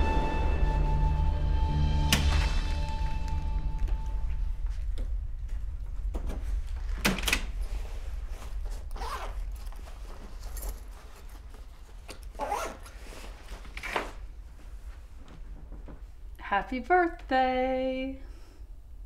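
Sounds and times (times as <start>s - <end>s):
low steady hum: 0.0s - 13.7s
jacket rustling: 6.6s - 16.0s
jacket zipping: 8.7s - 9.7s, 12.3s - 14.2s.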